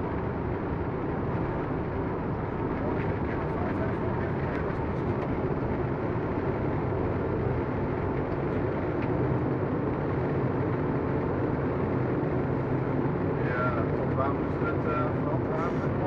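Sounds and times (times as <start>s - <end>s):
airflow and engine noise: 0.0s - 16.0s.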